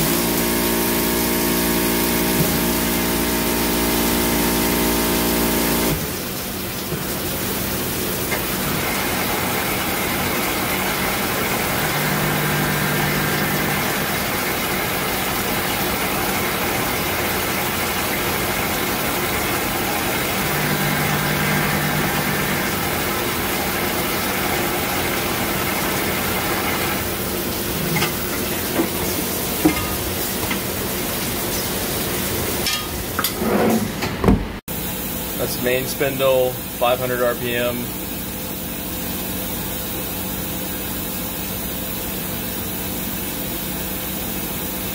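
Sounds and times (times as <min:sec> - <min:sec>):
coolant hissing and splashing: 0:00.0 - 0:32.7, 0:34.7 - 0:44.9
deeper machine hum: 0:07.3 - 0:29.4
lathe machine hum: 0:08.5 - 0:27.6.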